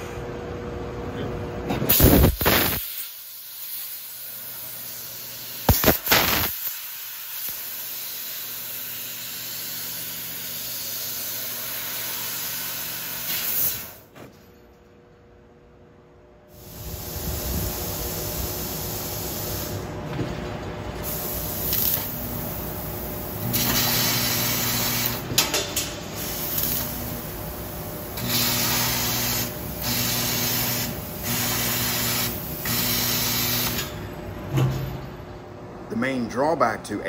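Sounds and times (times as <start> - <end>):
loud air hiss from cutting head: 1.9 - 14.0, 16.5 - 19.8, 23.4 - 25.2, 28.2 - 33.8
sharp crack: 2.0 - 2.9, 5.7 - 6.7.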